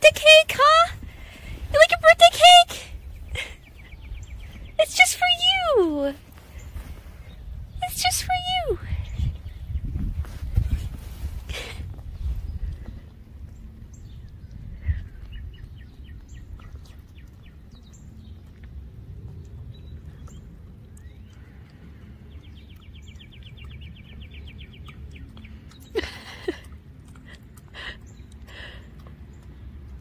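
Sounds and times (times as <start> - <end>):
small birds chirping: 0.0 - 30.0.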